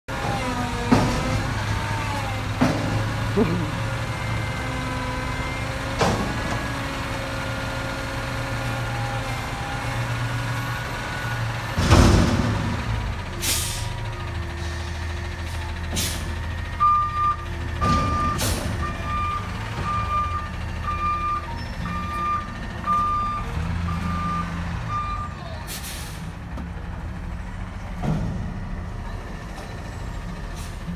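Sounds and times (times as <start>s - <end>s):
truck engine running low: 0.1s - 30.9s
truck backup alarm beeping: 3.0s - 7.1s, 13.4s - 26.0s
air brake hisses: 13.4s - 14.0s, 16.0s - 16.3s, 25.7s - 26.3s.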